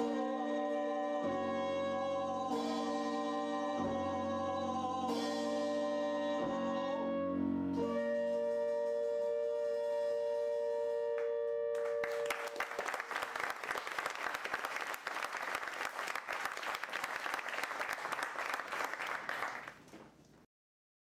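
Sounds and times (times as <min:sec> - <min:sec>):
audience applause: 0:11.8 - 0:20.0.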